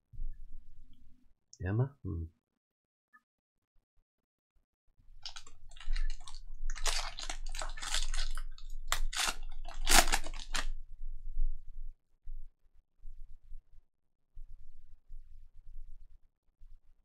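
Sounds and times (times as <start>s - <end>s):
foil wrapper crinkling and tearing: 5.2s - 10.8s.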